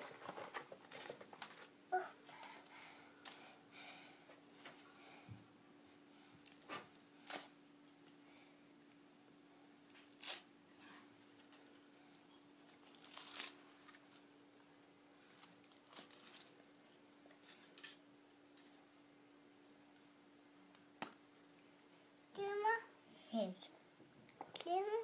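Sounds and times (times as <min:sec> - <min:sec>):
faint steady hum: 0:00.0 - 0:25.0
foil wrapper crinkling and tearing: 0:09.9 - 0:10.5, 0:12.6 - 0:14.2, 0:15.3 - 0:17.9.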